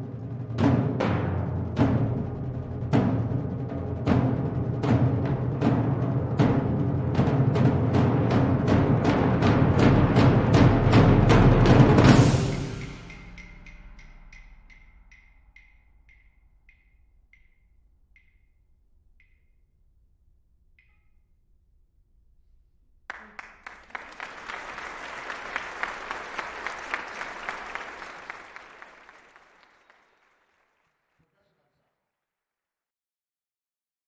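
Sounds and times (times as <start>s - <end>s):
loud percussion hit: 6.4s - 15.1s
small high-pitched percussion strokes: 12.1s - 21.6s
audience applause: 23.1s - 31.4s.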